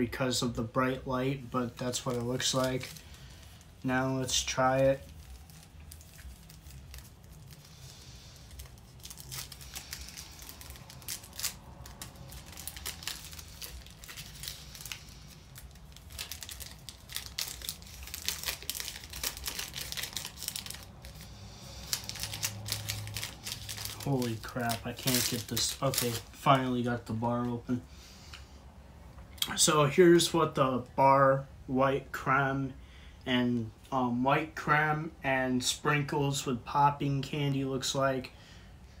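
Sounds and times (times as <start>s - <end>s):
candy wrapper crinkling: 1.4s - 27.6s.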